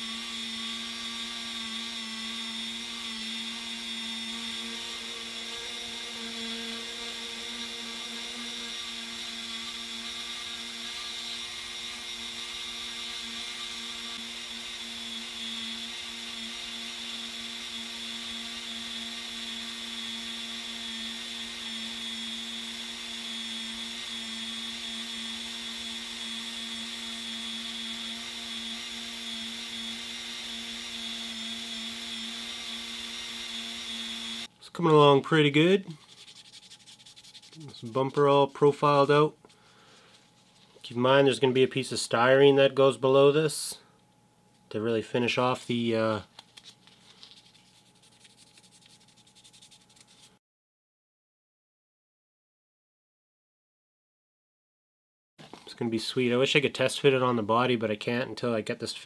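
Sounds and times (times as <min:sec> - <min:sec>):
rotary tool grinding putty: 0:00.0 - 0:34.5.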